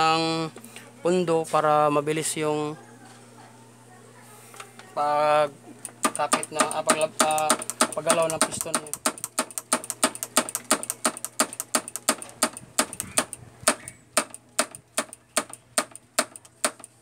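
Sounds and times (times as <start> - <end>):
rapid mechanical clicking: 5.8 - 17.0.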